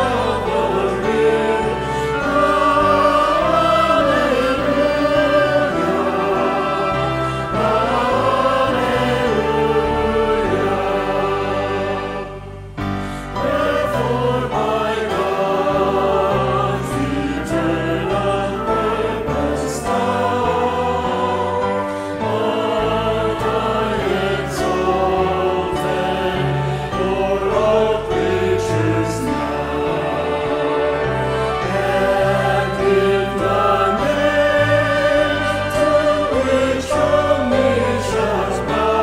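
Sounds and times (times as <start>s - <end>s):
group singing a hymn: 0.0s - 39.0s
instrumental accompaniment: 0.0s - 39.0s.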